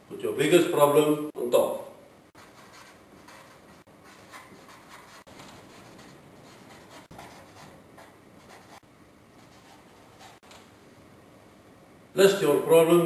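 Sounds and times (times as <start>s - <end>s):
marker scratching on whiteboard: 2.3s - 10.6s.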